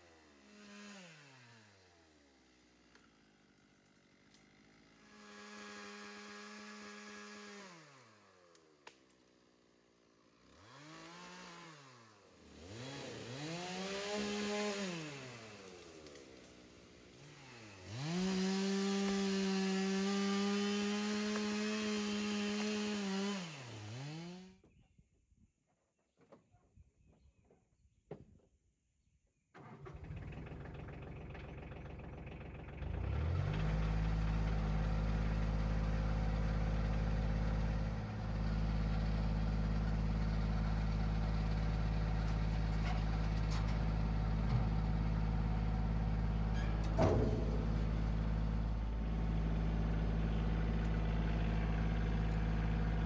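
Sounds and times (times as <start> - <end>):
chainsaw revving: 0.0 - 8.9, 9.7 - 24.6, 32.8 - 42.0, 45.0 - 53.0
tractor engine running: 29.6 - 53.0.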